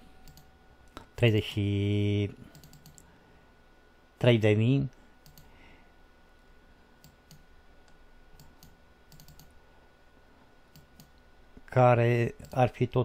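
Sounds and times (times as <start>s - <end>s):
computer mouse clicks: 0.2s - 1.1s, 2.5s - 3.1s, 5.2s - 5.5s, 7.0s - 9.6s, 10.7s - 11.2s, 12.4s - 12.6s.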